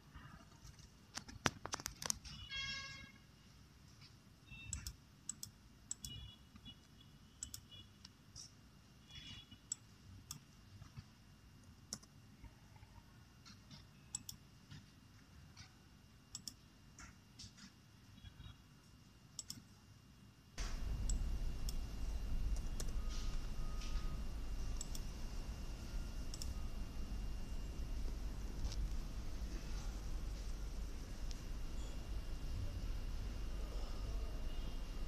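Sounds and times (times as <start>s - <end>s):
mouse and key clicks: 4.6s - 6.2s, 7.4s - 7.7s, 13.5s - 14.4s, 16.3s - 17.6s, 19.4s - 19.7s, 22.5s - 25.1s, 26.3s - 26.6s
steady low rumble: 20.6s - 35.0s.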